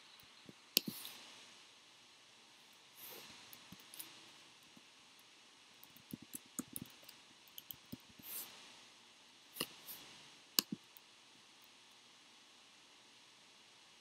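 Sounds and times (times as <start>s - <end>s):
computer keyboard and mouse clicks: 5.8s - 8.1s, 10.6s - 10.8s.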